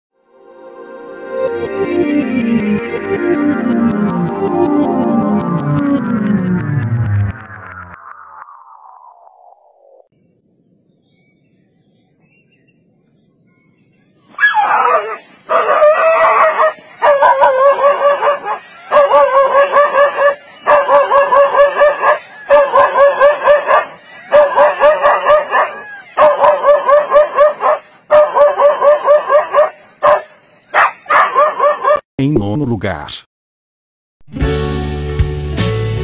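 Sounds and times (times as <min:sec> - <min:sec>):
dog barking rapidly: 0:14.4 - 0:32.0.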